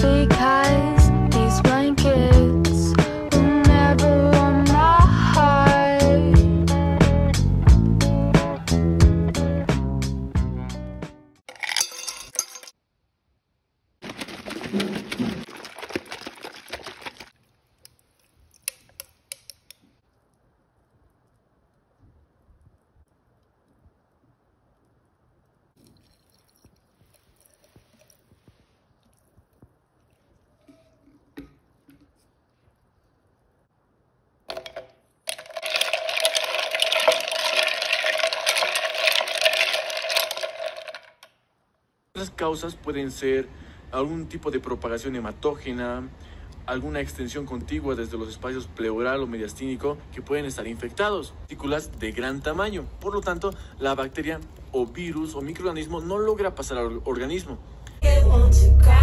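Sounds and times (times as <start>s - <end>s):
ice cracking in drink: 11.5s - 12.7s, 14.0s - 20.3s, 25.8s - 28.4s, 34.5s - 41.3s
coffee pouring over ice: 14.0s - 19.1s, 25.8s - 32.4s, 34.5s - 41.3s, 51.6s - 56.0s
milk frother whirring: 35.3s - 41.2s.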